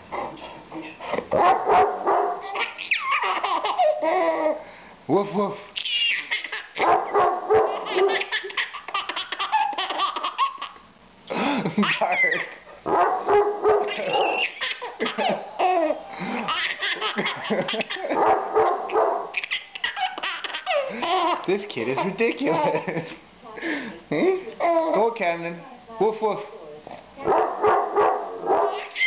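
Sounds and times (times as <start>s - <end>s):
large dog barking: 1.3s - 2.5s, 6.8s - 8.3s, 12.9s - 14.4s, 18.0s - 19.4s, 27.3s - 28.9s
baby laughing: 2.4s - 4.6s, 5.8s - 6.9s, 7.8s - 10.9s, 11.6s - 12.7s, 13.8s - 18.2s, 19.3s - 23.2s, 28.8s - 29.0s.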